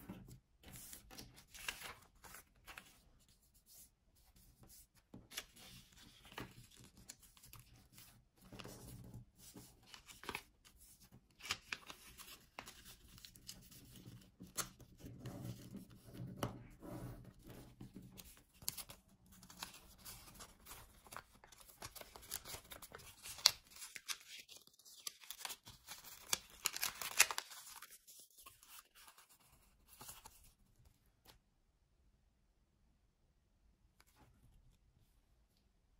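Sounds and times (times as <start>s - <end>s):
paper rustling and crinkling: 0.2s - 3.3s, 5.2s - 16.4s, 17.4s - 30.6s
paper crackles: 18.2s - 30.4s.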